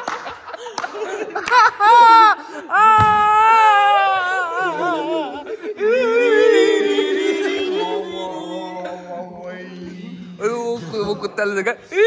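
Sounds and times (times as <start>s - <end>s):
high voice singing with vibrato: 4.6s - 10.9s.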